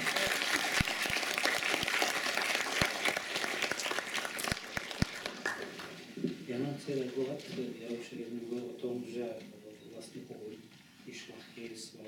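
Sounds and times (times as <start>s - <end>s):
audience applause: 0.0s - 6.0s.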